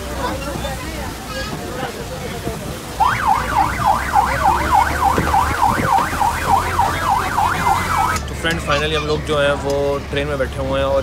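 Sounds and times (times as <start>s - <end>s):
electronic yelp siren: 3.0s - 8.2s.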